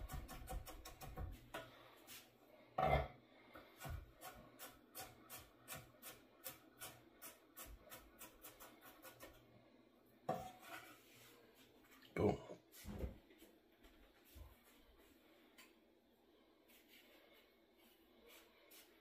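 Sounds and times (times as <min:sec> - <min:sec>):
knife chopping on wooden board: 0:00.0 - 0:01.4.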